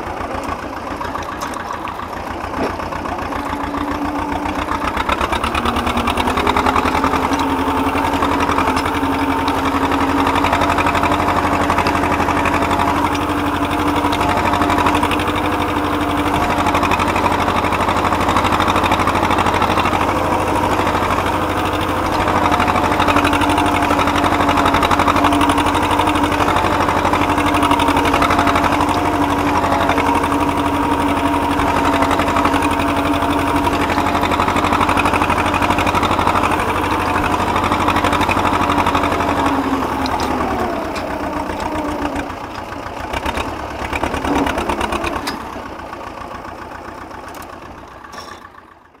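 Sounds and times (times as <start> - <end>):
tractor diesel engine running: 0.0 - 49.0.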